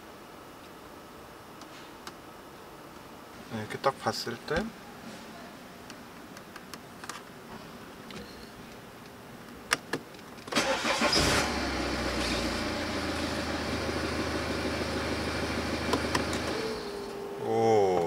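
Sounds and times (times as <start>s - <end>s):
diesel engine idling: 10.6s - 17.2s.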